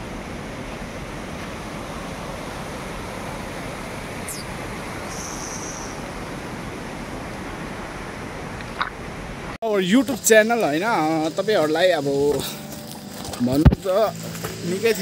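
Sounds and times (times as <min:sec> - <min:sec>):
stream rushing: 0:00.0 - 0:15.0
high falling bird chirp: 0:04.2 - 0:06.0.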